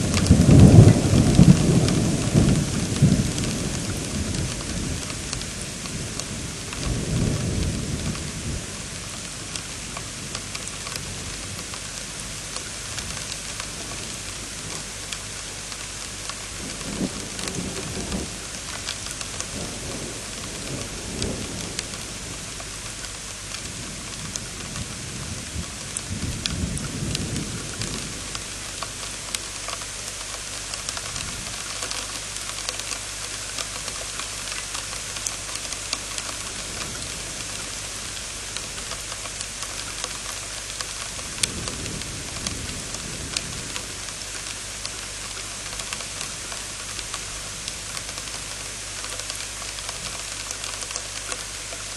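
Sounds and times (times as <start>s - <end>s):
thunder rumbling: 0.0s - 9.7s, 16.6s - 18.5s, 41.2s - 44.1s
heavy rain falling: 0.0s - 51.9s
raindrop ticks: 0.0s - 51.9s.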